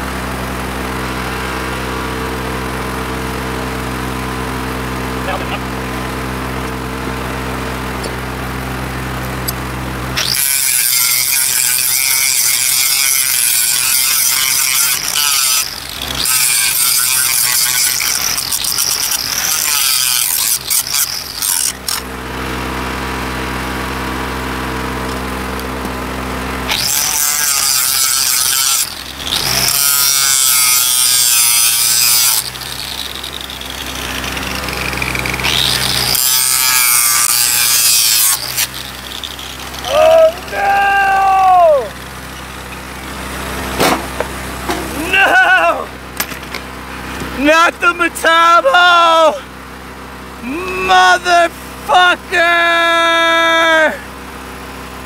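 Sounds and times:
low machine hum: 0:00.0 - 0:55.0
angle grinder grinding steel: 0:08.0 - 0:22.6, 0:26.6 - 0:49.6, 0:50.4 - 0:54.0.

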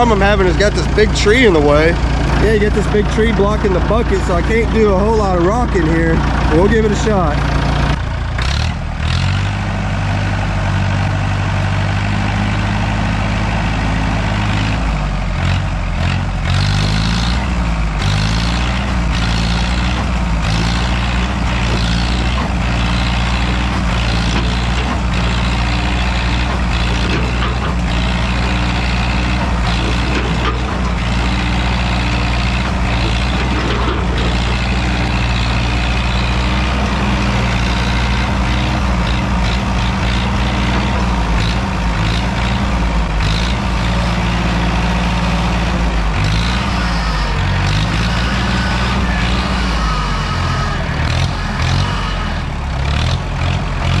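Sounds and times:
tractor engine running under load: 0:00.0 - 0:54.0.

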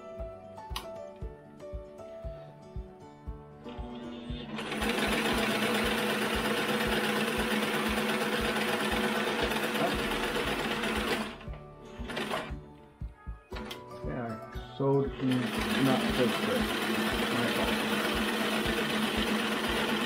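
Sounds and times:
sewing machine running: 0:03.8 - 0:11.4, 0:12.0 - 0:12.5, 0:15.2 - 0:20.0.

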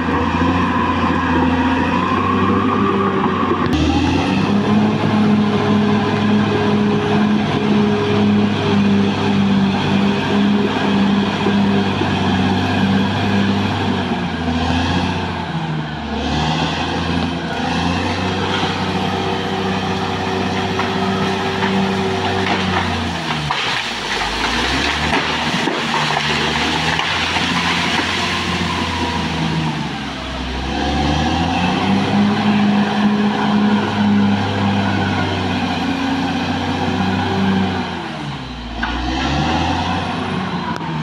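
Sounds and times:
bulldozer diesel engine under load: 0:00.0 - 0:41.0
crackling and clatter of brush: 0:19.9 - 0:29.2.

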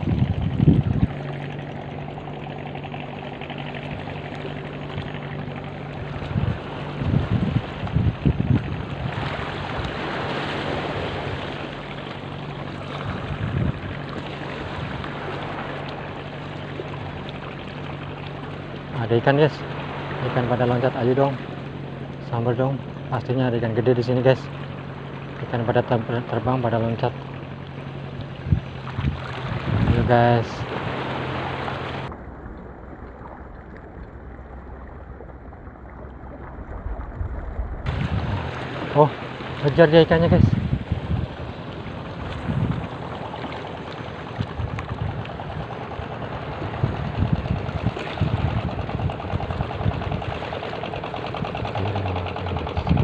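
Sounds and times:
wind on microphone: 0:00.0 - 0:02.4, 0:03.7 - 0:11.7, 0:12.7 - 0:15.5, 0:28.1 - 0:32.1, 0:36.4 - 0:53.0
boat engine humming: 0:00.0 - 0:53.0
water along shore: 0:00.0 - 0:53.0.

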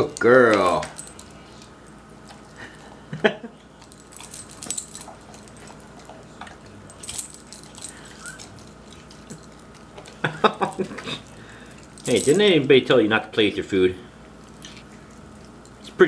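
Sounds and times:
dog collar tags jingling: 0:00.4 - 0:01.4, 0:03.8 - 0:12.8.

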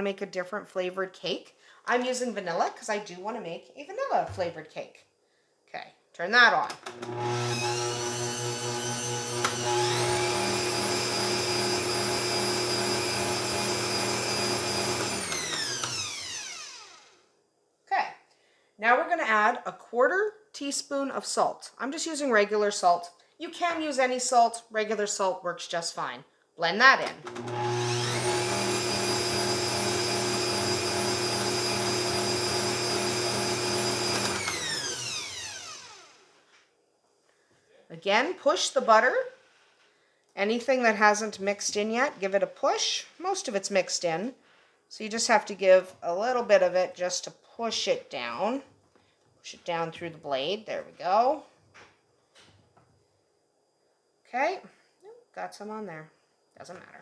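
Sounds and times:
stand mixer motor whine: 0:06.9 - 0:17.1, 0:27.2 - 0:36.2.

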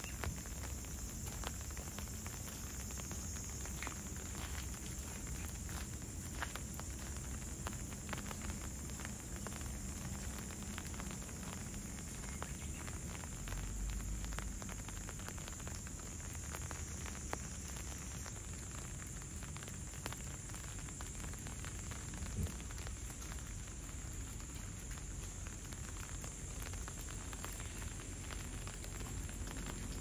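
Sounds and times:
light rain hissing: 0:00.0 - 0:30.0
raindrops pattering: 0:00.0 - 0:30.0.

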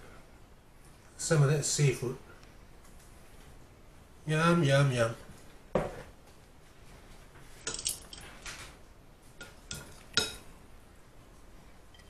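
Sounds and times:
cutlery clinking against a dish: 0:09.4 - 0:10.5.

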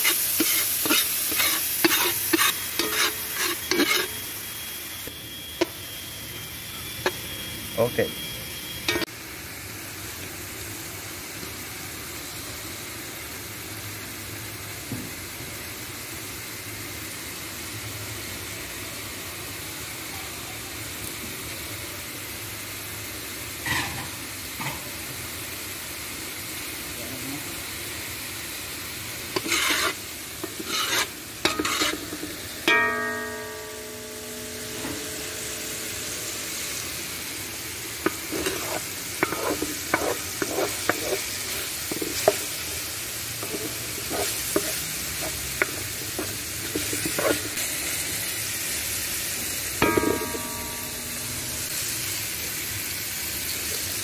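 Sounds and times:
spatula scraping pan: 0:00.0 - 0:04.3, 0:29.3 - 0:36.1, 0:37.8 - 0:47.7
vegetables sizzling in oil: 0:00.0 - 0:54.0
metal spatula knocking pan: 0:29.4 - 0:36.1, 0:38.0 - 0:42.5, 0:43.4 - 0:47.6, 0:49.8 - 0:51.7.

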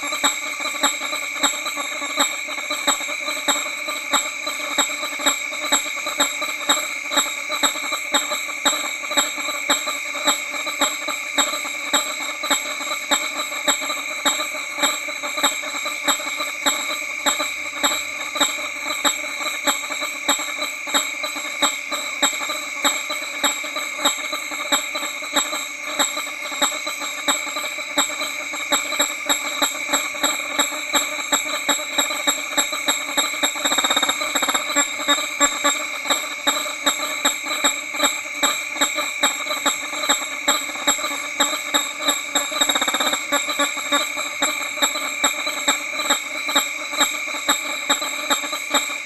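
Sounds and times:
distant bats honking: 0:00.0 - 0:49.0.

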